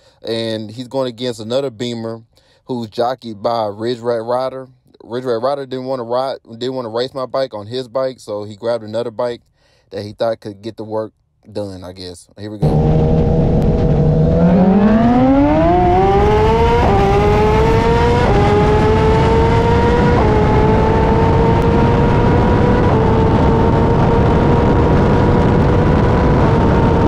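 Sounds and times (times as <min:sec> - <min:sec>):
motorcycle engine revving: 0:12.6 - 0:27.0
wind noise: 0:12.6 - 0:27.0.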